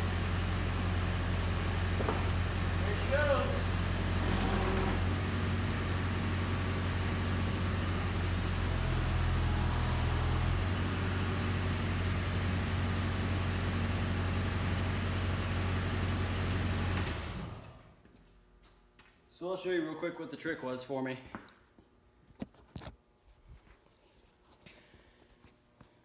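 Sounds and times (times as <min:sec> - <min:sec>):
diesel engine running: 0:00.0 - 0:17.7.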